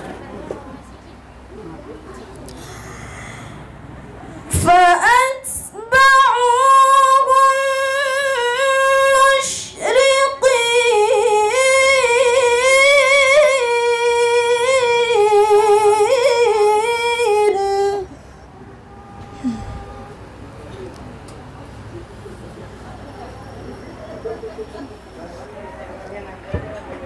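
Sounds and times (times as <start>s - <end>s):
short breath: 2.5s - 3.9s, 19.2s - 20.0s
woman reciting melodically: 4.5s - 18.5s.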